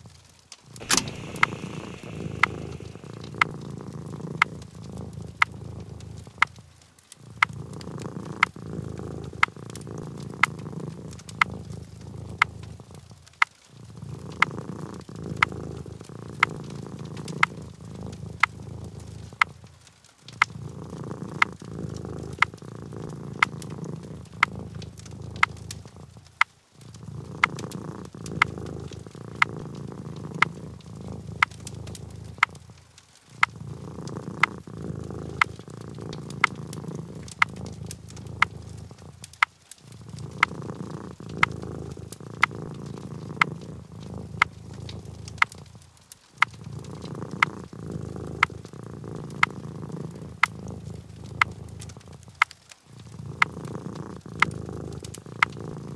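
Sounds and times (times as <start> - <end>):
cat purring: 0.0 - 55.9
regular sharp clicks: 0.1 - 55.9.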